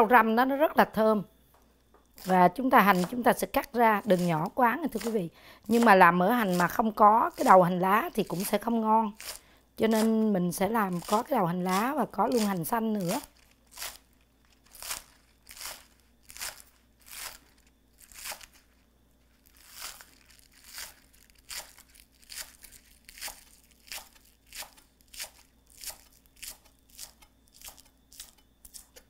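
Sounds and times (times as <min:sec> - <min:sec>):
knife slicing onions on cutting board: 0:02.2 - 0:14.0, 0:23.2 - 0:29.0.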